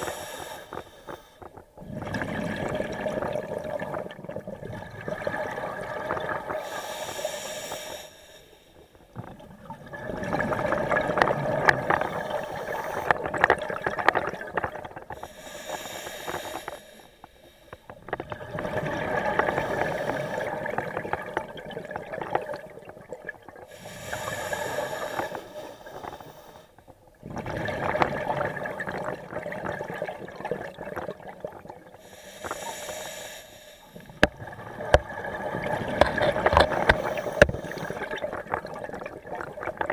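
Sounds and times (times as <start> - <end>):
regulator hiss on inhale: 0.0 - 1.6, 6.6 - 9.1, 15.2 - 18.0, 23.7 - 26.9, 32.0 - 34.3, 36.5 - 38.2
bubbling underwater: 1.7 - 6.6, 9.1 - 15.2, 18.0 - 23.7, 27.1 - 32.0, 34.0 - 39.9.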